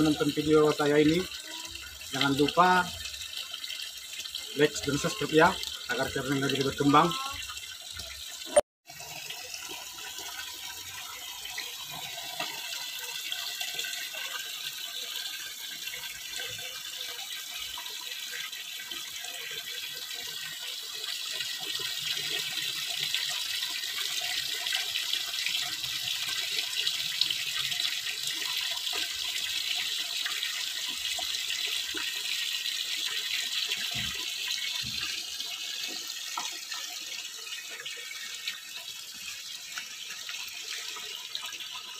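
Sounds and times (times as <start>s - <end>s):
water pouring into basin: 0.0s - 41.9s
tap splashing into bucket: 12.1s - 12.8s, 35.8s - 36.9s.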